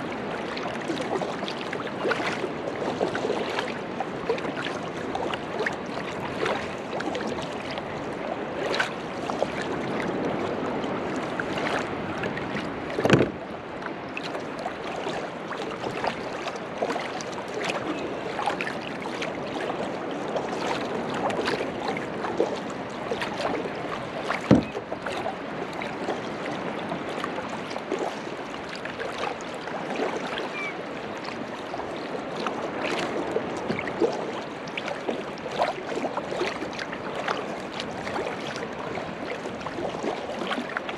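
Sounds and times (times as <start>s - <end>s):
small waves lapping against hull: 0.0s - 40.9s
sharp knocks on hull: 12.9s - 13.4s, 24.4s - 24.8s.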